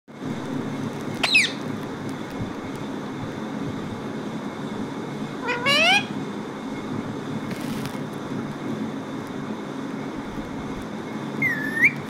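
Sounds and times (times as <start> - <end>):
steady low hum: 0.1 - 12.0
parakeet squawking: 1.2 - 1.7, 5.4 - 6.2, 11.4 - 12.0.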